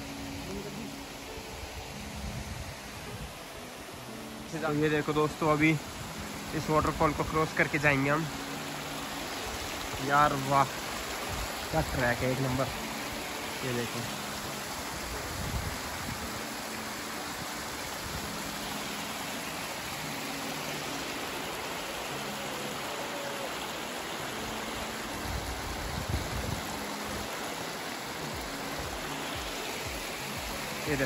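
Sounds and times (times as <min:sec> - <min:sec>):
stream splashing over rocks: 0:00.0 - 0:31.0.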